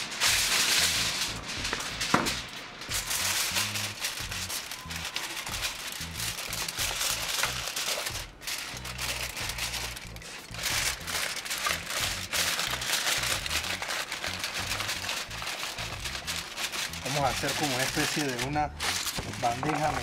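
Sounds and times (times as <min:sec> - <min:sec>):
aluminium foil crinkling: 0:00.0 - 0:20.0
background music with bass line: 0:00.0 - 0:20.0.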